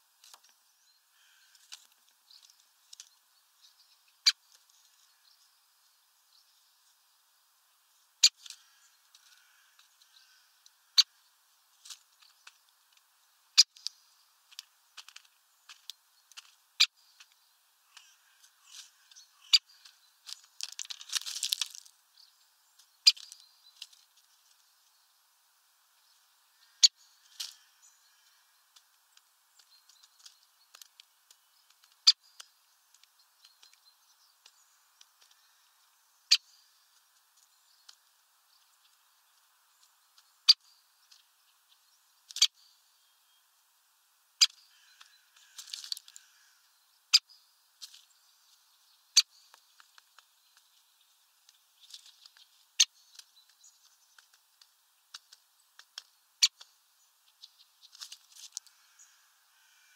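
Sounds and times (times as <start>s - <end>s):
seed husks ticking: 11.7s - 22.1s, 22.7s - 24.7s, 26.6s - 35.9s, 44.4s - 46.3s, 49.5s - 58.8s
rustling: 19.8s - 22.0s, 44.9s - 46.4s, 57.8s - 59.1s.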